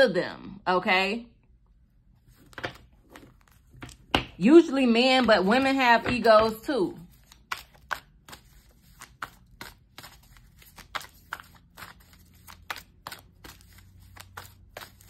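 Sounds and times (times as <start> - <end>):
cards being shuffled: 2.2 - 4.4, 5.2 - 15.0.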